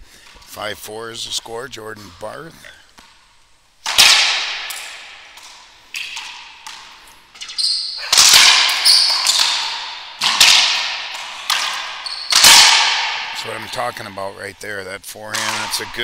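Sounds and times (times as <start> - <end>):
racquet hitting ball echoing: 3.0 - 14.5, 15.3 - 16.0.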